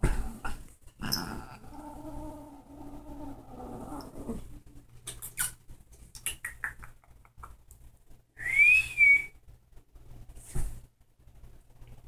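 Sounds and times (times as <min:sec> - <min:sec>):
person whistling: 0:08.4 - 0:09.3.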